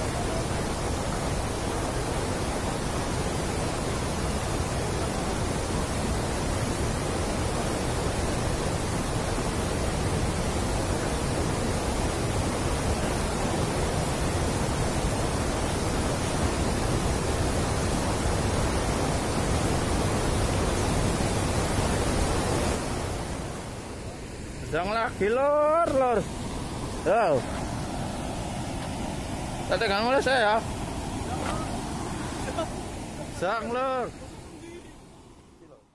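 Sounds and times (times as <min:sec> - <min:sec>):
water churning: 0:00.0 - 0:35.2
river water rushing through weir: 0:00.0 - 0:35.9.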